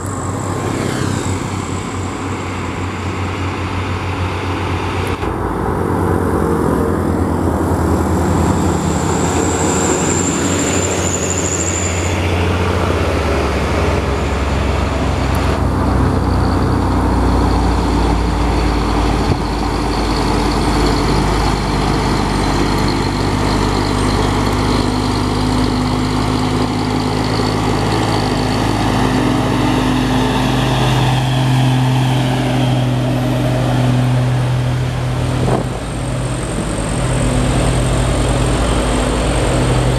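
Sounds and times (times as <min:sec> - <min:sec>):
diesel trucks climbing under load: 0:00.0 - 0:39.9
high whistle: 0:09.1 - 0:12.6.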